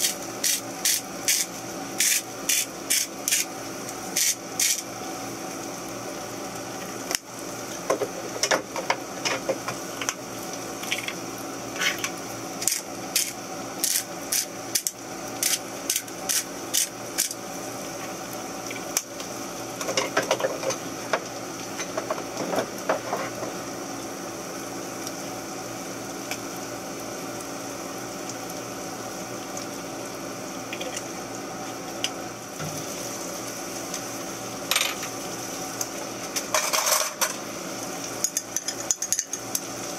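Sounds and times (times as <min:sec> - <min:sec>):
utensils clicking against bowl: 0:00.0 - 0:03.5, 0:11.8 - 0:17.4, 0:38.2 - 0:39.7
steady background hum: 0:00.0 - 0:39.9.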